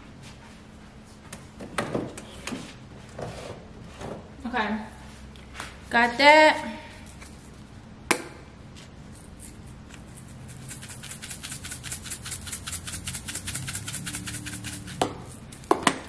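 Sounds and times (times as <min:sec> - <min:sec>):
seasoning rattling in shaker: 0:09.2 - 0:15.7.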